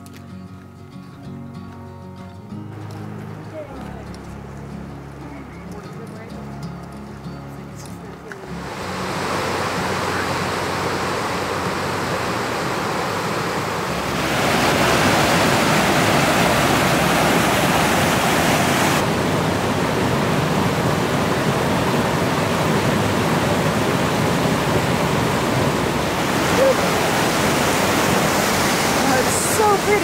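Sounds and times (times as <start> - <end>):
water rushing over rocks: 8.4 - 30.0.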